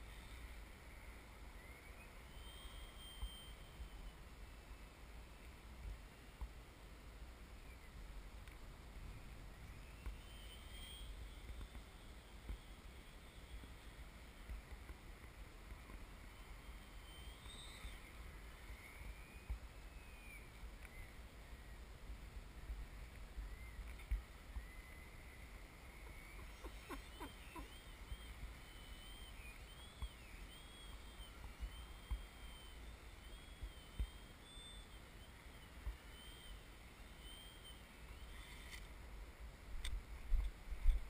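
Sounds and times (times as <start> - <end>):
low wind rumble: 0.0 - 41.0.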